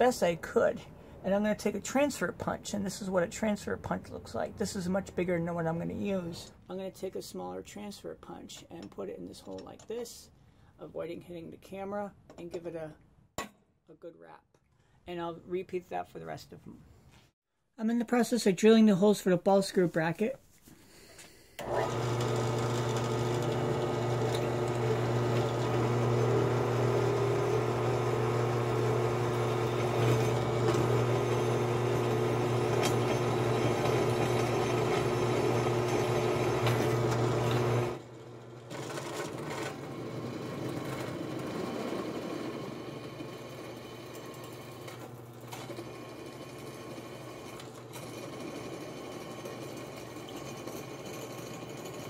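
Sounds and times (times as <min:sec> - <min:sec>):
drill press drilling metal: 0:21.6 - 0:52.0.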